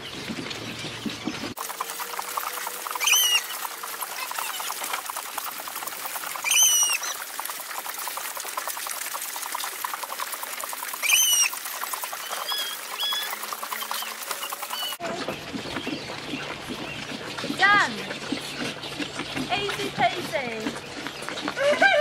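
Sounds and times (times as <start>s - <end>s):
calves sucking and slurping: 0.0s - 21.8s
short high squawks: 6.4s - 7.2s.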